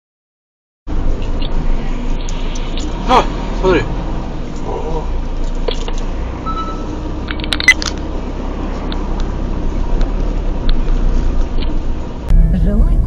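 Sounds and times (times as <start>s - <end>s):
road and engine rumble: 0.9s - 13.0s
scattered clicks: 7.2s - 8.0s.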